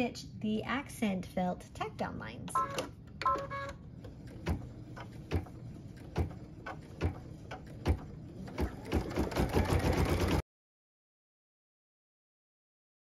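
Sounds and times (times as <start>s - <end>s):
embroidery machine stitching: 4.0s - 10.4s.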